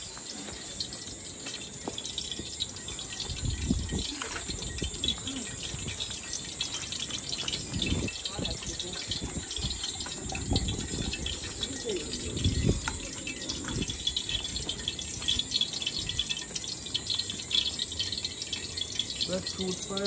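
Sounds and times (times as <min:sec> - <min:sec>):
wood fire crackling and hissing: 0:00.0 - 0:20.0.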